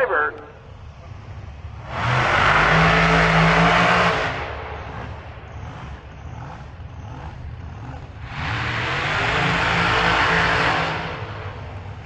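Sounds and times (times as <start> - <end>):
race car engine revving: 0.6 - 12.0.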